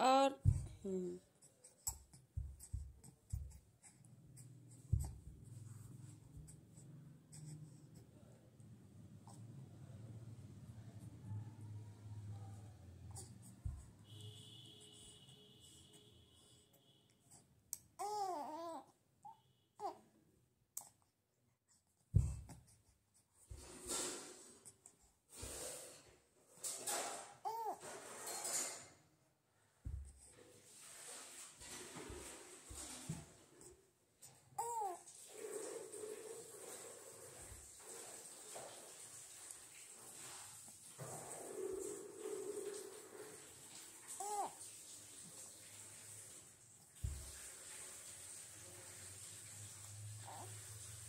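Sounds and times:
baby cooing: 0:18.0 - 0:19.0, 0:27.4 - 0:27.8, 0:34.6 - 0:35.1, 0:44.1 - 0:44.6
soft rustling on a blanket: 0:30.0 - 0:33.8, 0:35.1 - 0:51.0.

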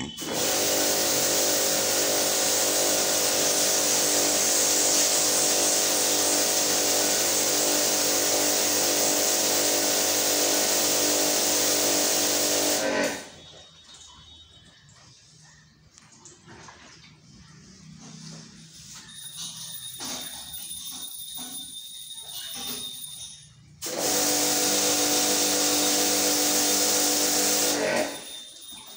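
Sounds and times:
electric pump humming and hissing: 0:00.1 - 0:13.4, 0:23.8 - 0:28.3.

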